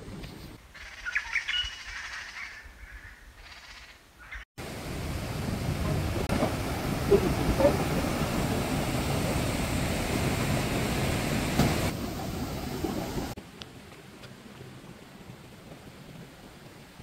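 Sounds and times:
river rushing over rapids: 4.6s - 13.6s.

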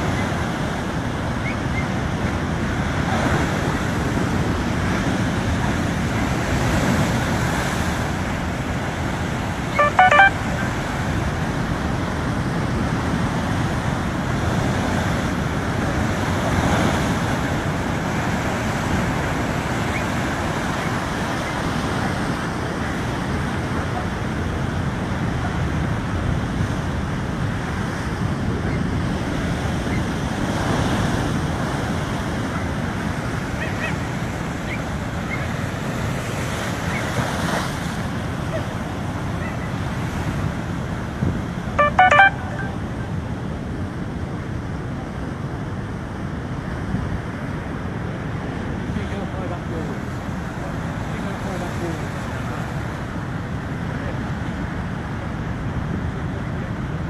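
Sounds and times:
rushing water: 0.0s - 57.0s
short pitched call or honk: 9.8s - 10.8s, 41.8s - 43.0s.

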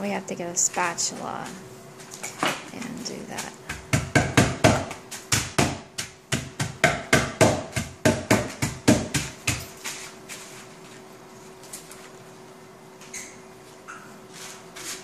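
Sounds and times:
mallet pounding dry ice: 3.3s - 10.0s.

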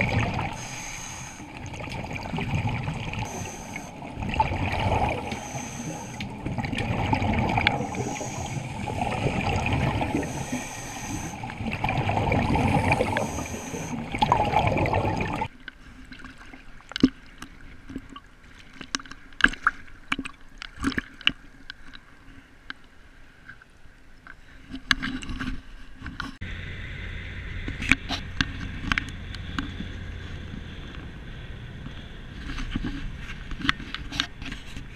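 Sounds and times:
diver regulator breathing: 0.0s - 1.8s, 3.2s - 11.8s, 12.4s - 14.4s
underwater bubbles rushing: 0.0s - 15.5s
water splashing: 0.0s - 22.0s
car engine humming: 26.4s - 32.5s.

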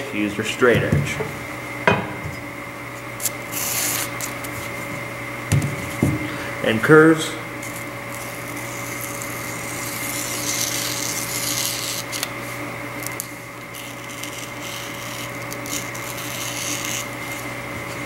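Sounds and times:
electrical hum: 0.0s - 18.0s
knife blade scratching foam: 3.2s - 4.7s, 7.6s - 12.4s, 13.0s - 18.0s.

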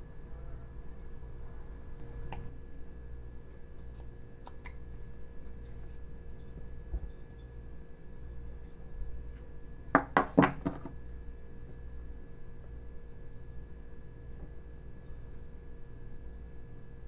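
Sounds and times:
knife knocking on wooden workbench: 10.0s - 10.9s.

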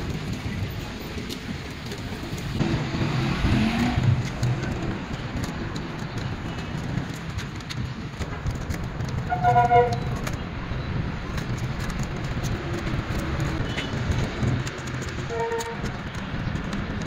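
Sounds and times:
low rumble of road traffic: 0.0s - 17.0s
vehicle horn: 9.3s - 10.2s, 15.3s - 15.9s.

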